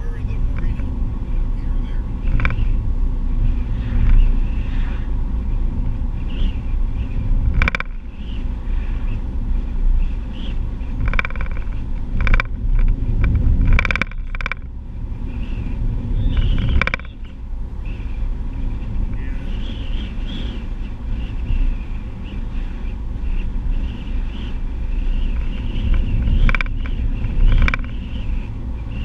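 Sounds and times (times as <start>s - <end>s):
car tyres and engine rumble: 0.0s - 29.0s
sharp knocks and rattles: 7.5s - 8.1s, 11.0s - 14.8s, 16.3s - 17.4s, 25.2s - 28.1s.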